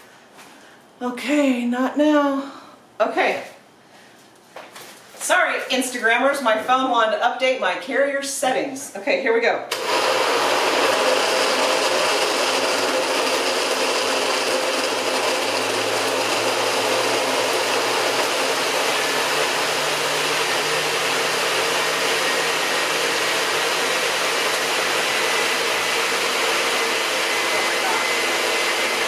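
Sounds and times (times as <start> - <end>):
blender whirring: 9.7 - 29.0.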